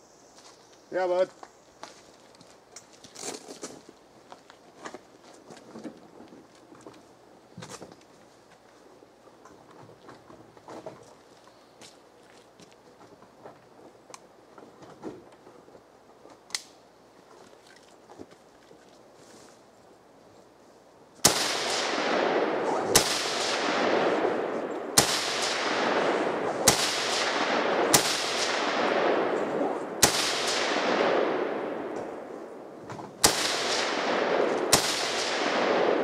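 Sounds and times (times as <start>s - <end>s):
rifle shots with rolling echo: 21.2s - 36.0s.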